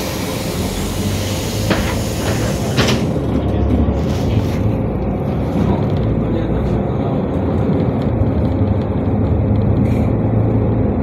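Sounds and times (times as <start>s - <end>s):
hiss: 0.0s - 3.0s
bus engine and road rumble: 0.0s - 11.0s.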